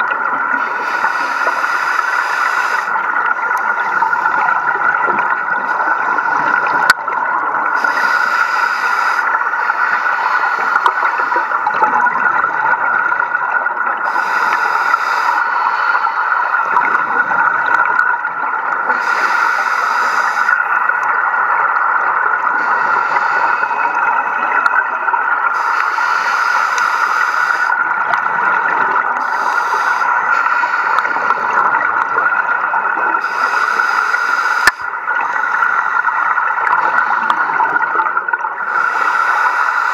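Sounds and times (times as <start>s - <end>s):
underwater bubble bursts: 2.7s - 8.0s, 10.8s - 14.6s, 16.6s - 19.1s, 27.2s - 33.8s, 34.6s - 38.7s.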